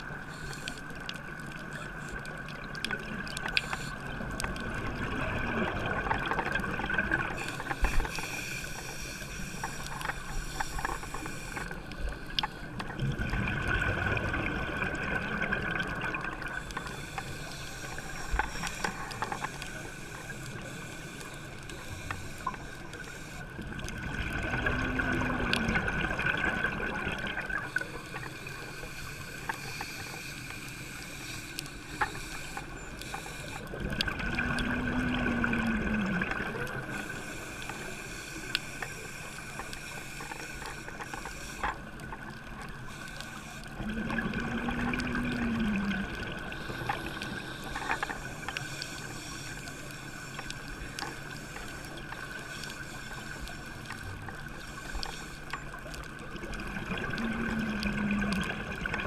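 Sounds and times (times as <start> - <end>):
small clicks: 0.0 - 13.8, 14.4 - 59.0
regulator breathing: 7.3 - 12.9, 16.5 - 23.6, 27.6 - 33.8, 42.8 - 43.8
exhaled bubbles: 12.9 - 16.7, 23.9 - 27.8, 33.7 - 37.1, 43.7 - 47.4, 56.1 - 59.0
muffled underwater background: 14.2 - 59.0.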